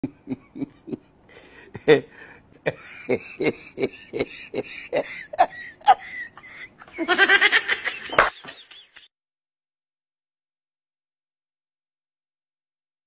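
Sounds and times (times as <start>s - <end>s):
person laughing: 0.0s - 1.2s, 1.8s - 9.1s.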